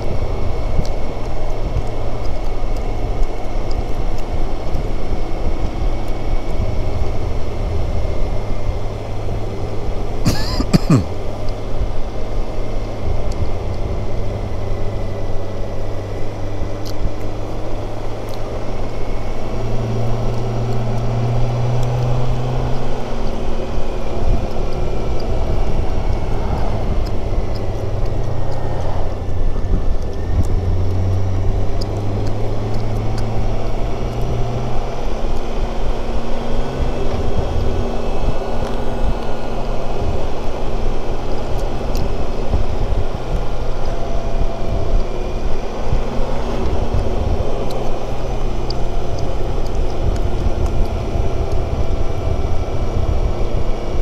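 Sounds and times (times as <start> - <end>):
wind rush: 32.9 - 54.0.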